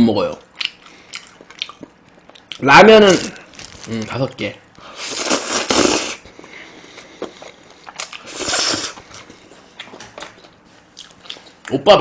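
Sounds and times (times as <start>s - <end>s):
chewing with wet mouth clicks: 0.4s - 2.6s, 9.8s - 11.8s
noodles slurped: 5.0s - 6.2s, 8.2s - 9.0s.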